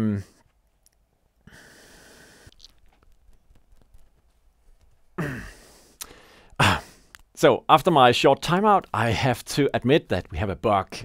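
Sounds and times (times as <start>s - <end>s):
faint room noise: 0.0s - 11.0s
man sighing: 5.2s - 7.2s.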